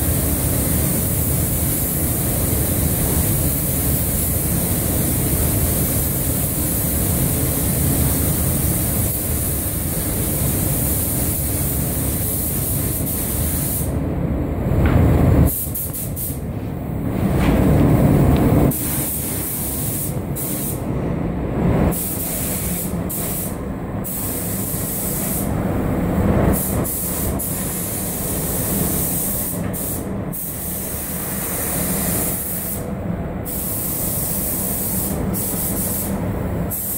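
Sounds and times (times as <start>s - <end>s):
paint spray gun hissing: 0.1s - 14.0s, 15.5s - 16.4s, 18.7s - 20.8s, 22.0s - 25.5s, 26.6s - 32.8s, 33.5s - 36.1s
low rush of air: 12.1s - 27.0s.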